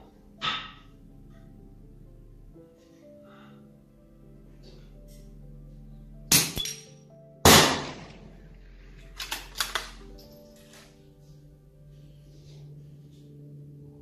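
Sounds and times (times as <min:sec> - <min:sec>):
background music: 0:00.0 - 0:14.0
rifle shots: 0:07.4 - 0:08.3.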